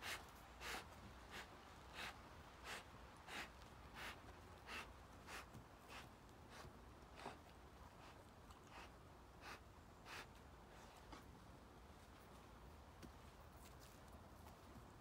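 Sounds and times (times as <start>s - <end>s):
big cat breathing in puffs: 0.0s - 11.3s.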